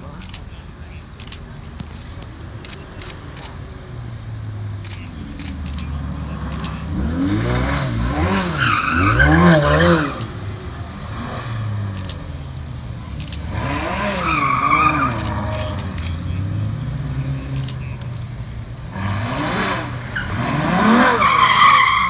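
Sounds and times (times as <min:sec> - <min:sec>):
car engines revving: 0:00.0 - 0:22.0
tyres squealing: 0:06.4 - 0:10.4, 0:11.7 - 0:18.2, 0:19.2 - 0:22.0.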